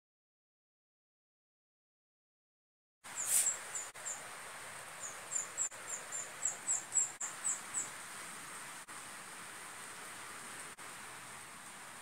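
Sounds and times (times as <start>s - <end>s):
steady hiss: 3.1s - 12.0s
swiftlets chirping: 3.2s - 3.9s.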